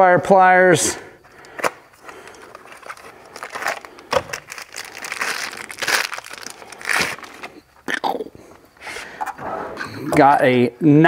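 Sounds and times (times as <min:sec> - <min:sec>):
plastic bag crinkling: 0:02.1 - 0:07.6.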